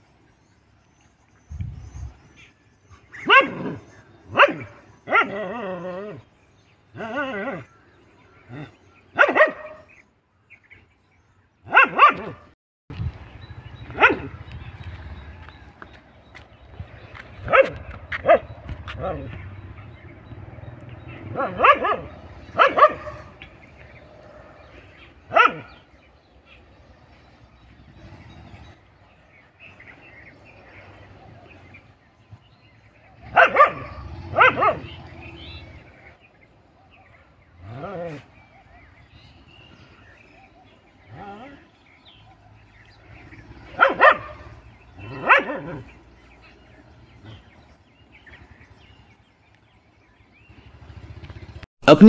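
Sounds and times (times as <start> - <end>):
dog barking: 3.2 - 5.6, 9.1 - 9.9, 11.7 - 12.6, 13.9 - 14.4, 17.5 - 19.1, 21.2 - 23.5, 25.3 - 25.8, 33.2 - 35.2, 43.7 - 46.0
dog barking sharply: 9.2 - 9.8, 11.7 - 12.4, 21.3 - 23.4, 25.3 - 25.7, 33.3 - 34.9, 43.8 - 44.5.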